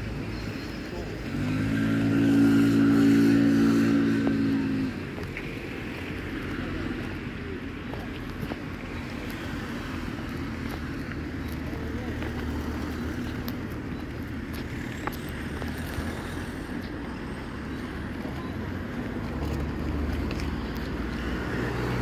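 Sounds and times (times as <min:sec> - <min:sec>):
faint voices: 0:00.0 - 0:22.0
road traffic rumble: 0:00.0 - 0:22.0.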